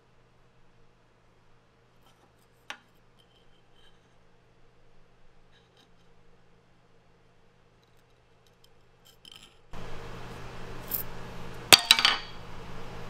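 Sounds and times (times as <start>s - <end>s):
hiss with low hum: 9.8s - 13.0s.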